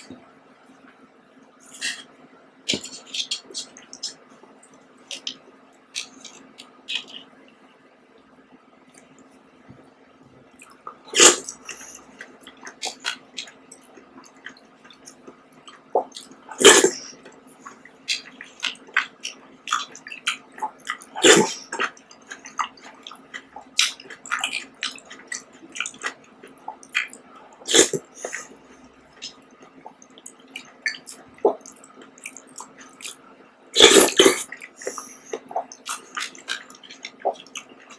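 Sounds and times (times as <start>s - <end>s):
chewing: 10.6s - 33.2s, 33.8s - 37.9s.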